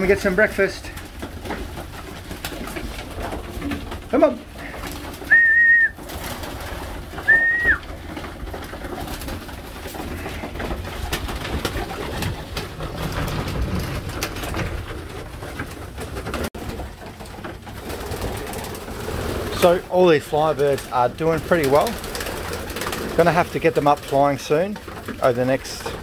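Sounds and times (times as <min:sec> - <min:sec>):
pigeons cooing: 0:00.0 - 0:16.2
pigeons pecking: 0:00.0 - 0:26.0
wing flutters: 0:00.0 - 0:26.0.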